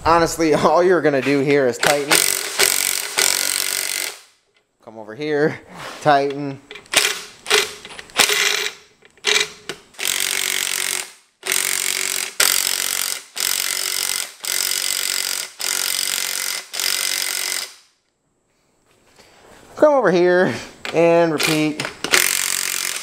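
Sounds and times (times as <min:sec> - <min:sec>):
impact wrench hammering: 0:01.8 - 0:04.3, 0:06.9 - 0:17.8, 0:21.4 - 0:23.0.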